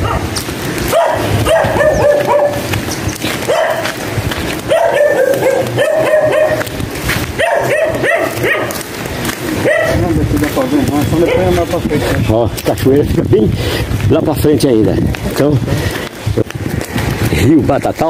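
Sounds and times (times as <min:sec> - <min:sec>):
dog barking: 0:00.0 - 0:02.7, 0:03.4 - 0:10.2, 0:11.1 - 0:11.7.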